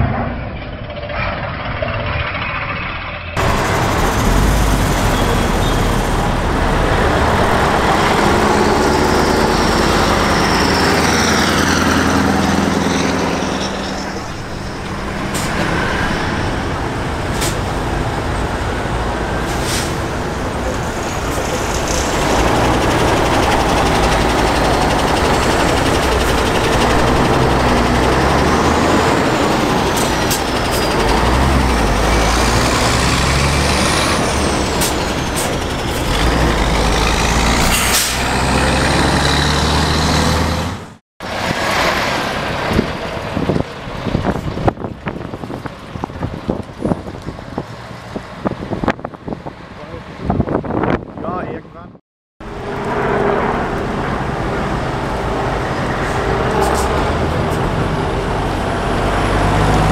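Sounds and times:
diesel trucks driving past: 0.0s - 51.0s, 52.4s - 59.9s
air brakes hissing: 37.6s - 38.3s.

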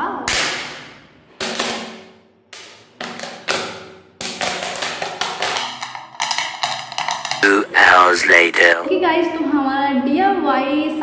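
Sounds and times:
plastic bottle taps and cracks: 0.3s - 7.5s.

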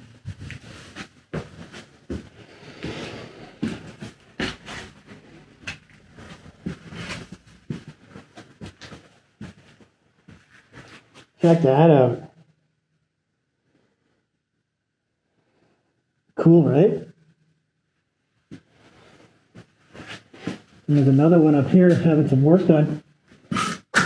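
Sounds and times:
footsteps on debris-strewn floor: 0.0s - 11.3s.

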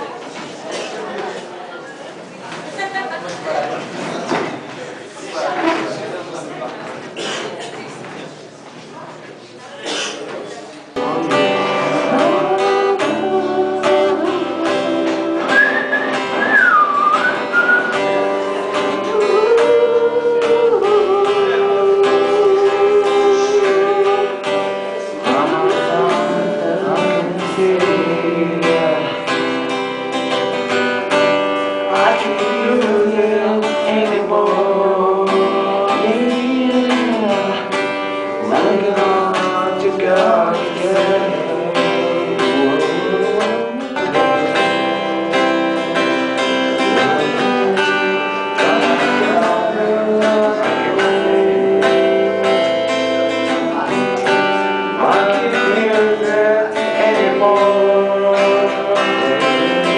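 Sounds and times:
strummed acoustic guitar: 10.9s - 59.9s
men singing: 11.0s - 17.8s, 25.0s - 29.3s, 31.9s - 59.9s.

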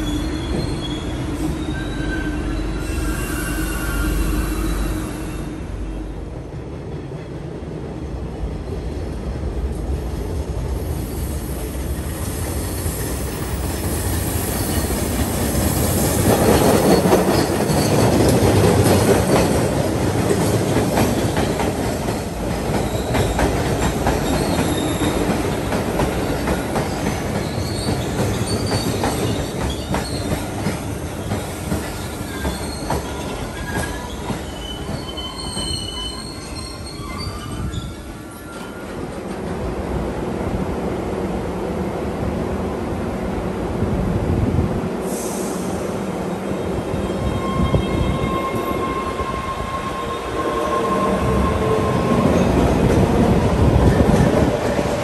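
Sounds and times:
high wheel squeals: 0.0s - 5.7s, 13.1s - 15.2s, 31.4s - 38.9s, 46.9s - 52.6s
train rumbling on rails: 0.0s - 55.0s.

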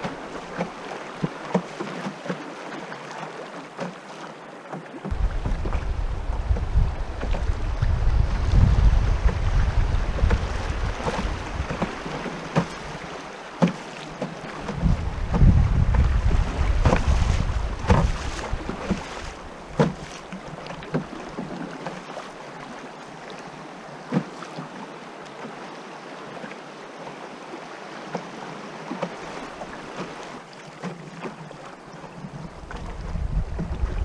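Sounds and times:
river water rushing: 0.0s - 34.0s
wind buffeting microphone: 5.1s - 13.0s, 14.6s - 19.8s, 32.5s - 34.0s
sharp knocks: 17.8s - 18.2s.

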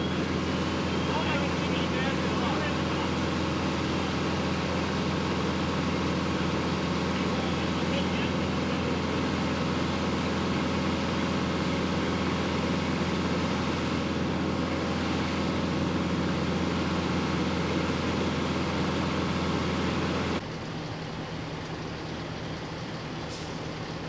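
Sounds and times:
distant engine rumble: 0.0s - 24.0s
large engine humming: 0.0s - 24.0s.

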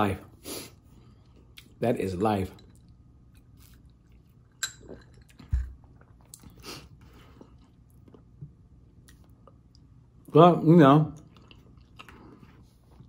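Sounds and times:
quiet chewing: 2.6s - 10.0s, 11.1s - 13.0s.

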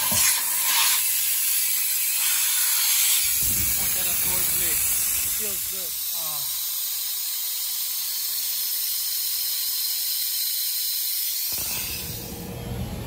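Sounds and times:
blower fan air hiss: 0.0s - 13.0s.

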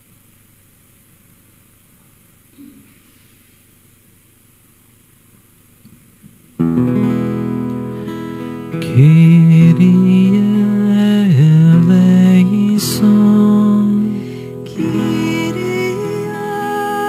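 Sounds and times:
acoustic guitar music: 6.6s - 17.0s.

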